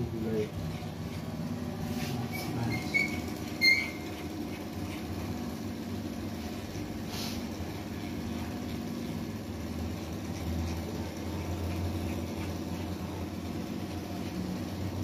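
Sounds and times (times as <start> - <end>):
short high squeaks: 2.2 - 4.2.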